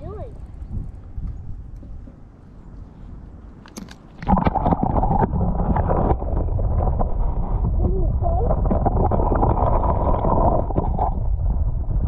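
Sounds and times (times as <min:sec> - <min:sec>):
muffled underwater water rushing: 0:04.2 - 0:12.0
muffled wavering sound: 0:04.3 - 0:12.0.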